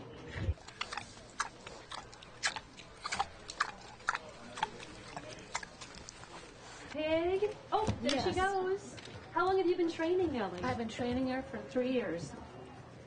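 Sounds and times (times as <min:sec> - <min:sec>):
pig hooves clicking: 0:00.6 - 0:06.7.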